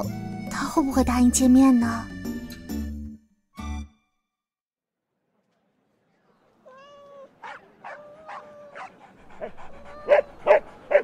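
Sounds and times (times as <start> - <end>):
dog whining: 6.7 - 10.6
dog yelping: 6.7 - 11.0.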